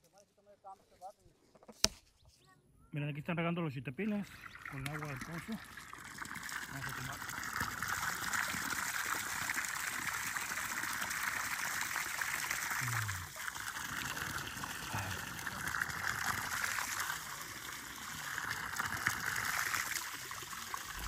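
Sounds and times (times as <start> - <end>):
water gushing from a hose: 4.2 - 21.0
water splashing on wet ground: 4.6 - 21.0.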